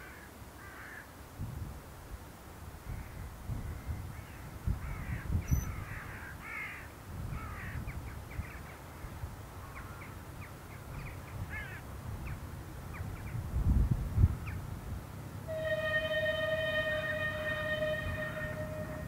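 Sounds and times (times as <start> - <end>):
crows cawing: 0.0 - 1.0, 5.8 - 7.8
low irregular rumble: 12.5 - 19.0.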